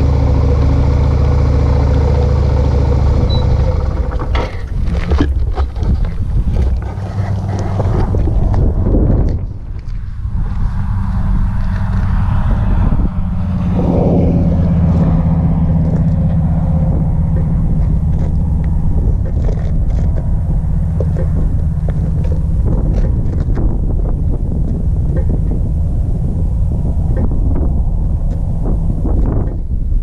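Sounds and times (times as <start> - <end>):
motorcycle engine idling: 0.0 - 5.0
wind noise on microphone: 1.8 - 30.0.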